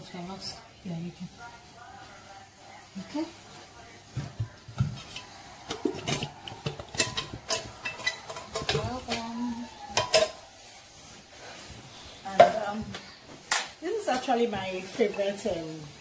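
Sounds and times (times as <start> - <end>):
tin cans clinking and scraping: 4.8 - 10.6.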